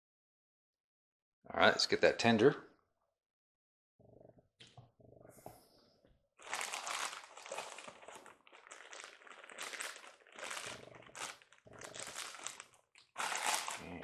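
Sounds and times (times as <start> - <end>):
packaging crinkling: 6.4 - 14.0.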